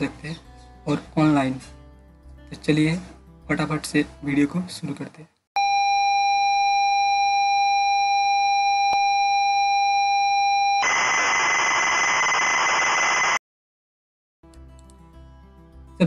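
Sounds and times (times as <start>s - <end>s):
loud static hiss: 10.8s - 13.4s
click: 14.5s - 15.0s.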